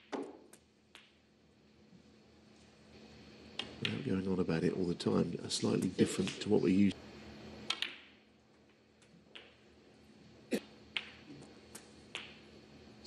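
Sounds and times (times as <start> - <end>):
snooker balls clicking: 0.0 - 1.2, 7.6 - 9.7, 10.9 - 12.5
faint steady hum: 0.0 - 13.0.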